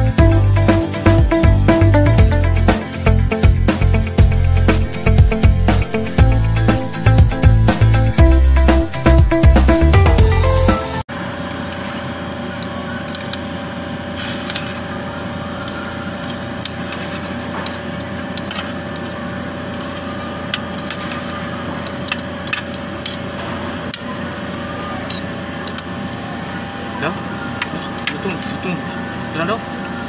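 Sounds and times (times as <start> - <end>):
pot hissing on stove: 11.2 - 29.5
spoons scraping in metal pot: 14.1 - 24.0, 27.6 - 28.8
metal clinking on pot: 15.6 - 23.3.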